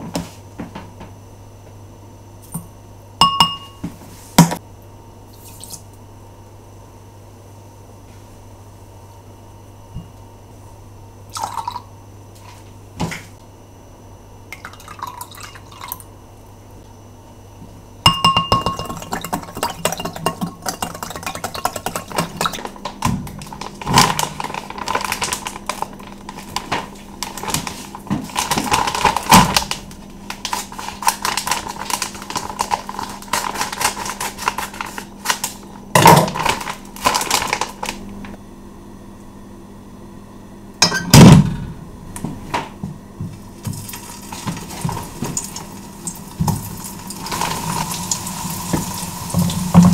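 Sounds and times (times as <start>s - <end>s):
low steady hum: 0.0s - 49.9s
spoon clicking on glass bowl: 3.2s - 3.7s, 18.1s - 19.0s.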